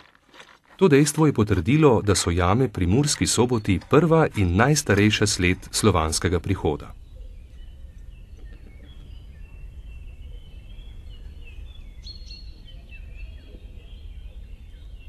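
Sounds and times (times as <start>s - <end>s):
birds chirping and whistling: 2.9s - 15.0s.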